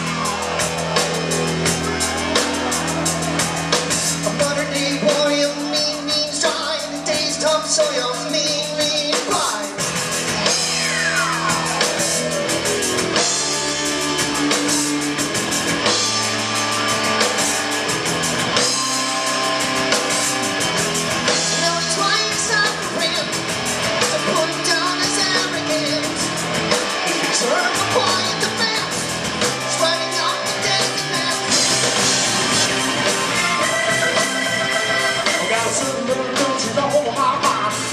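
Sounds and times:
person singing: 0.0s - 9.8s, 24.0s - 29.0s, 29.6s - 32.1s, 33.4s - 37.9s
live rock band playing: 0.0s - 37.9s
falling pitch sweep: 10.4s - 17.6s.

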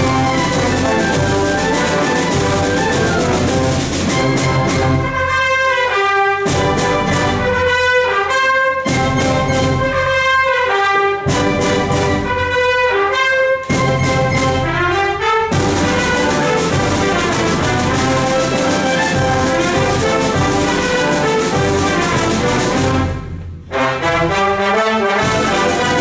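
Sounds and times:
wind band playing: 0.0s - 26.0s.

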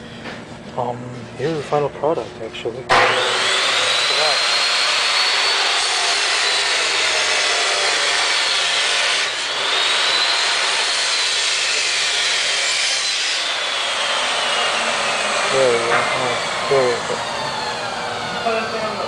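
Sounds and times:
power tool motor whining: 2.9s - 19.0s.

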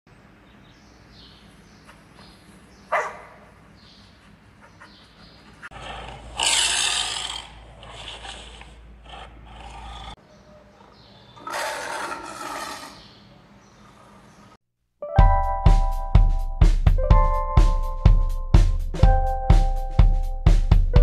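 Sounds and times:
dog bark: 2.9s - 3.5s
tiger growling and roaring: 5.6s - 10.2s, 10.8s - 13.2s.

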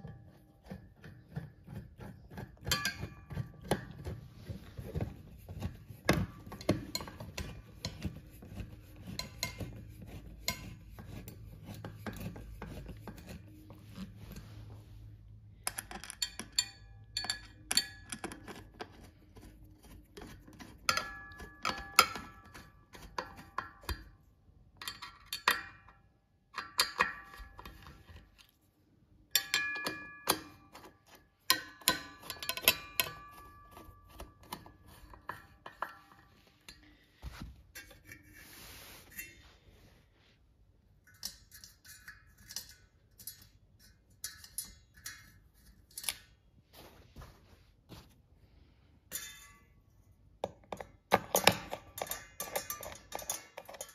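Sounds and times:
screwdriver clicks and metallic clinks: 15.6s - 19.1s, 29.4s - 36.1s, 41.0s - 46.4s, 50.4s - 53.9s.

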